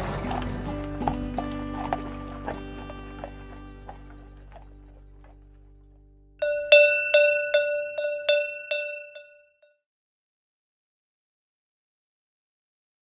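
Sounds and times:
cowbell clanking: 6.4s - 9.5s.

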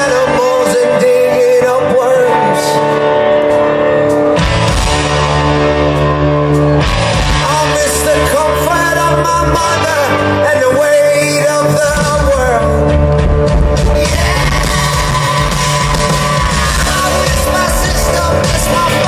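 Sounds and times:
man singing: 0.0s - 3.0s, 7.4s - 13.0s, 13.7s - 19.0s
rock band playing: 0.0s - 19.0s.

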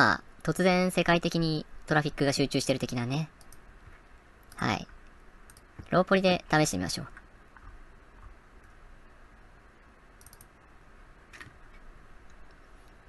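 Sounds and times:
low room hum: 0.0s - 13.0s
computer mouse clicks: 3.4s - 6.0s, 10.2s - 10.6s, 11.3s - 13.0s.

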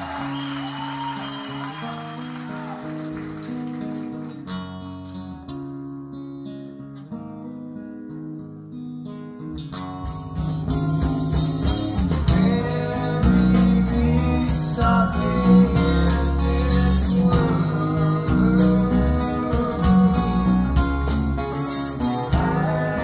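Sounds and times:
band music through speakers: 9.8s - 23.0s.

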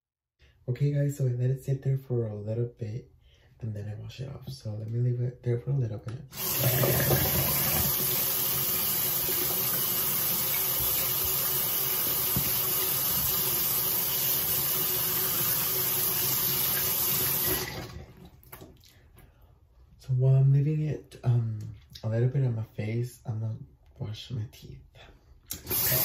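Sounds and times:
tap running into sink basin: 6.4s - 8.3s, 8.9s - 14.3s.

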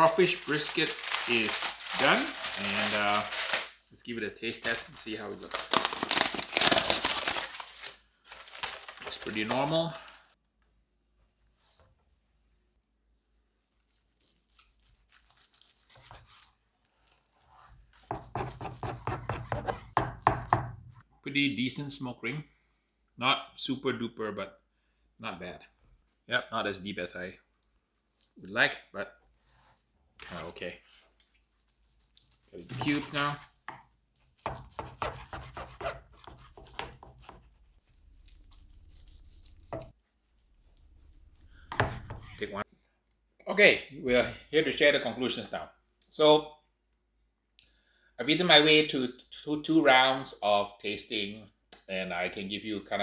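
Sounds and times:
knife sawing through crusty meat: 13.6s - 16.6s, 31.6s - 41.9s.

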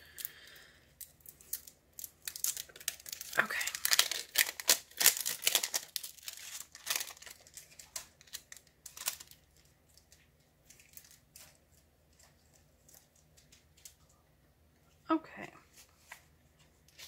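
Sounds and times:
plastic wrapper crinkling: 0.0s - 14.1s.

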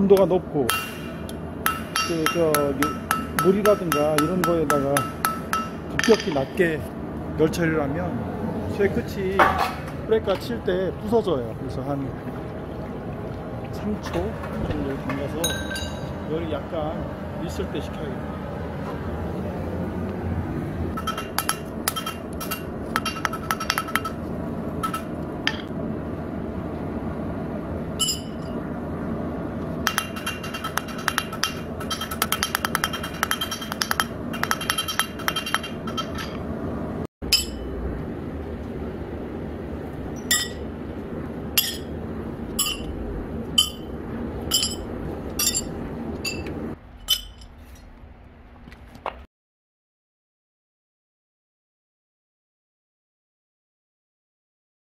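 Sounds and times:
steady background rush: 0.0s - 47.5s
hammer striking metal on anvil: 0.2s - 6.6s, 15.4s - 16.1s, 21.0s - 24.2s, 29.9s - 36.4s, 37.3s - 37.7s, 40.2s - 40.6s, 41.6s - 41.9s, 42.6s - 42.9s, 43.6s - 43.9s, 44.5s - 44.8s.

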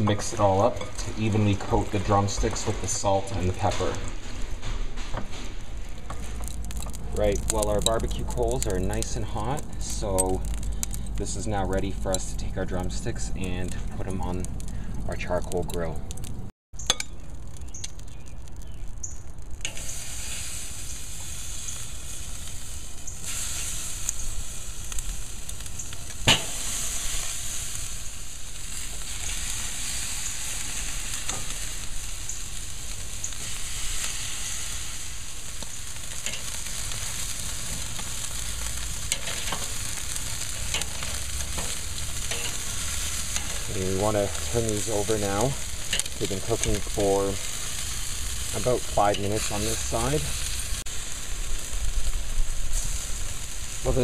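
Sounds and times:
meat sizzling on a grill: 0.0s - 4.0s, 5.7s - 16.0s, 16.8s - 54.0s
metal tongs clicking on grate: 36.2s - 36.6s, 39.1s - 39.7s, 40.6s - 42.6s, 45.9s - 46.9s.

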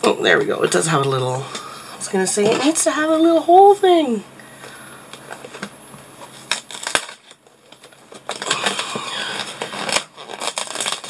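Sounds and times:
cardboard scratching and rustling: 6.2s - 11.0s.

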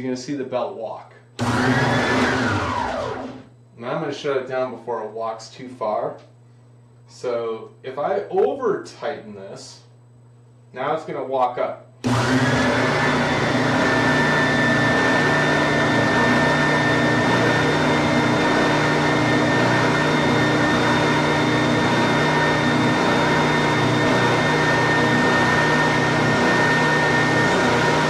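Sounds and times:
belt sander motor humming: 1.4s - 3.5s, 12.0s - 28.0s.

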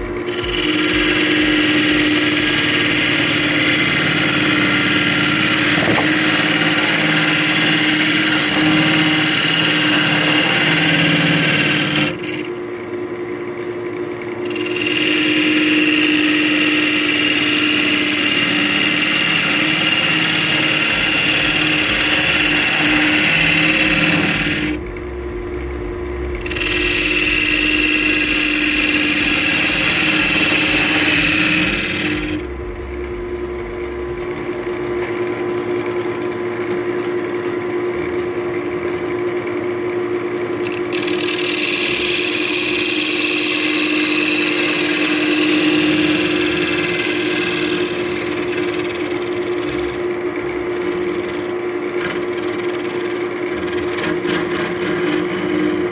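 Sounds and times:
lathe motor hum: 0.0s - 55.9s
tool cutting wood hiss: 0.3s - 12.5s, 14.4s - 24.8s, 26.4s - 32.5s, 40.6s - 50.1s.

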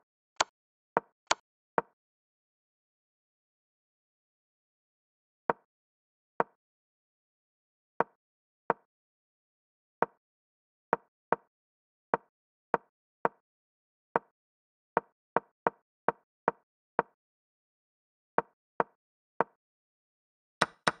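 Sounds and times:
chess piece wooden clicks: 20.6s - 21.0s.

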